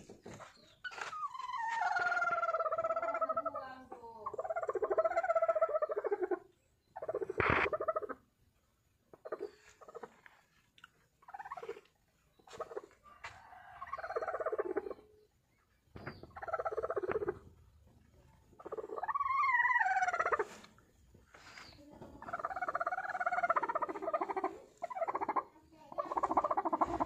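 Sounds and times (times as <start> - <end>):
hen growling calls: 0.9 - 8.2, 18.6 - 20.6, 22.2 - 27.0.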